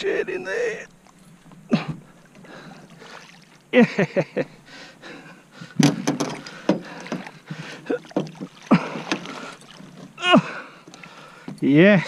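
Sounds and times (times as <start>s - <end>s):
landing net knocking against boat: 5.7s - 7.4s, 8.1s - 10.2s.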